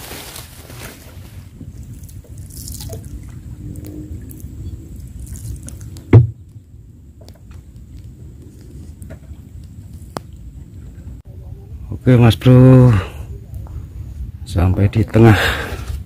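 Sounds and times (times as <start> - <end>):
low rumble: 0.0 - 15.0
water dripping and splashing: 1.6 - 11.2.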